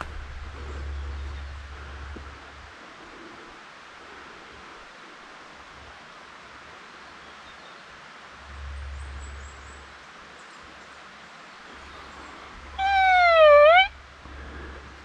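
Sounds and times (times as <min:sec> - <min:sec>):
forest ambience hiss: 0:00.0 - 0:15.0
faint bird chirps: 0:11.8 - 0:14.0.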